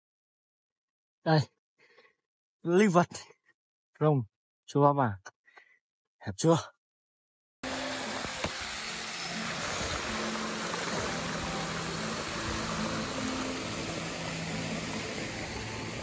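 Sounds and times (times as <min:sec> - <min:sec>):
fountain splashing into pond: 0:07.6 - 0:16.0.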